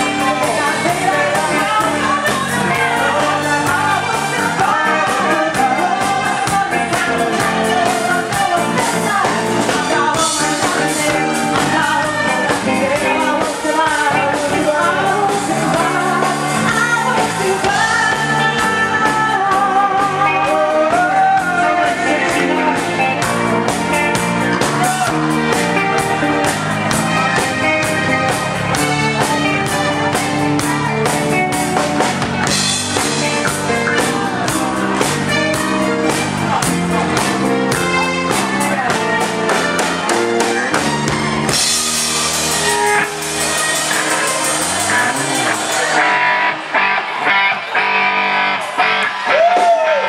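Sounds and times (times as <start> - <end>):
woman singing into microphone: 0.0 - 23.2
live band playing: 0.0 - 50.0.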